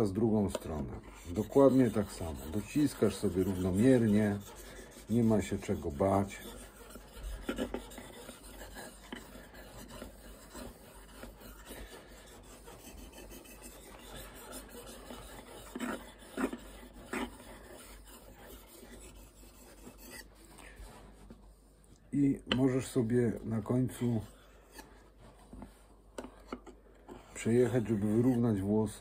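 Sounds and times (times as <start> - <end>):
knife scraping on whetstone: 0.0 - 20.5.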